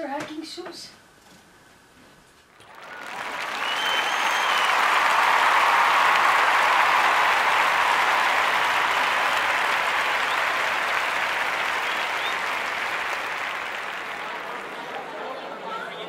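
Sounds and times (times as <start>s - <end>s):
crowd applauding: 2.5s - 16.0s
whistles: 2.6s - 13.8s.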